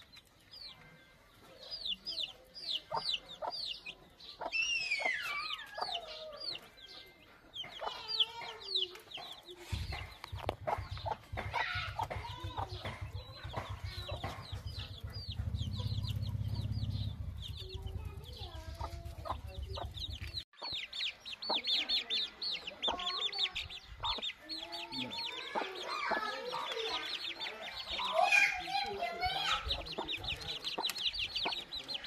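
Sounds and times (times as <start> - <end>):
chicks peeping: 0.0 - 32.0
hen clucking: 1.7 - 32.0
low rumble: 14.6 - 20.4.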